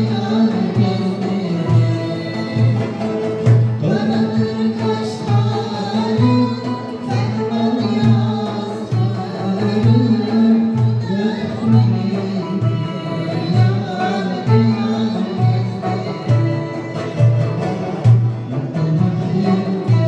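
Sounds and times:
woman singing: 0:00.0 - 0:03.2, 0:03.8 - 0:20.0
frame drum: 0:00.0 - 0:20.0
goblet drum: 0:00.0 - 0:20.0
plucked lutes: 0:00.0 - 0:20.0.

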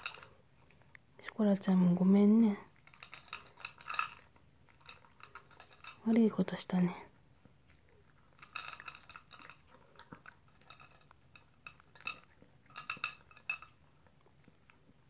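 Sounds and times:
dog food clinking in bowl: 0:00.0 - 0:00.4, 0:02.8 - 0:06.1, 0:08.4 - 0:13.8.

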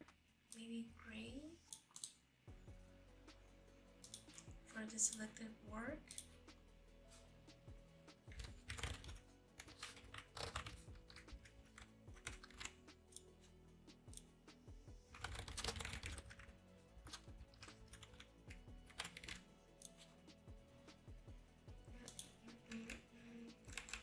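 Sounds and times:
typing on computer keyboard: 0:08.3 - 0:13.2, 0:15.1 - 0:16.5, 0:17.1 - 0:19.4, 0:22.0 - 0:24.0.

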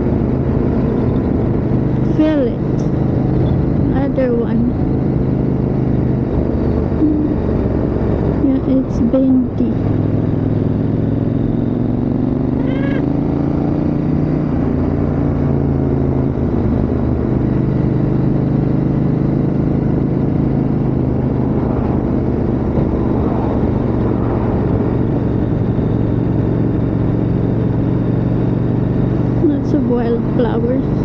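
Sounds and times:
motorcycle engine cruising: 0:00.0 - 0:31.0
wind noise: 0:19.9 - 0:31.0.

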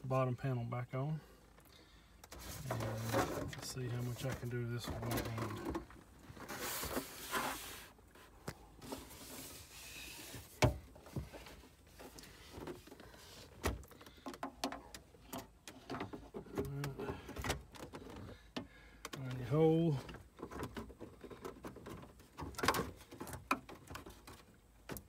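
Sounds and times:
plastic trim rustling and scraping: 0:02.3 - 0:18.4.

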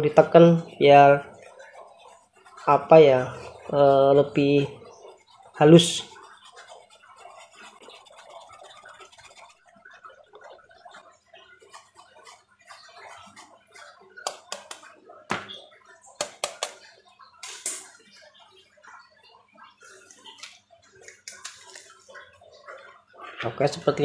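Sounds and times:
sharp taps and clicks: 0:14.2 - 0:15.6, 0:16.2 - 0:18.0.

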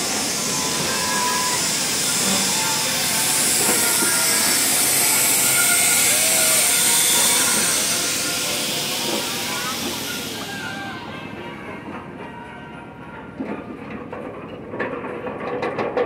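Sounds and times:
loud hiss: 0:00.0 - 0:11.4
rolling rail noise: 0:00.0 - 0:16.0
small train running: 0:00.0 - 0:16.0.

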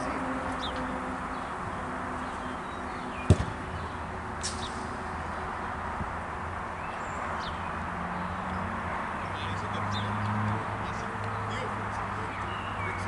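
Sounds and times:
outdoor background hiss: 0:00.0 - 0:13.0
football kicked thump: 0:03.2 - 0:03.6.

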